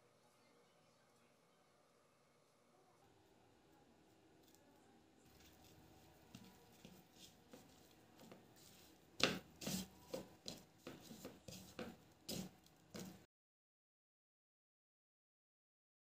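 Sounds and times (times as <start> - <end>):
fingers rubbing spice onto fish: 5.3 - 13.2
short scratchy taps: 6.3 - 13.3.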